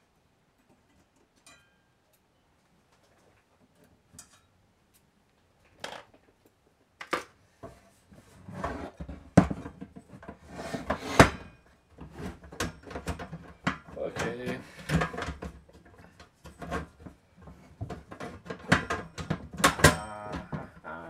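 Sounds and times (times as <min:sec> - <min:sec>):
metal case knocking and scraping: 0:08.6 - 0:20.8.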